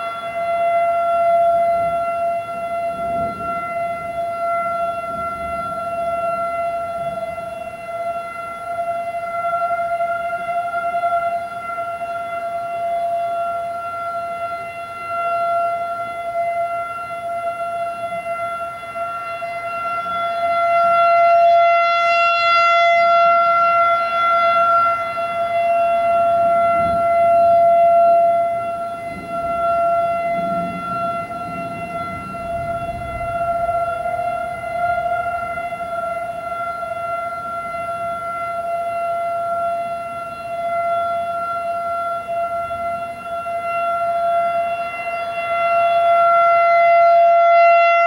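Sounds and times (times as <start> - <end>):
rotating warning siren steady tone: 0.0 - 48.0.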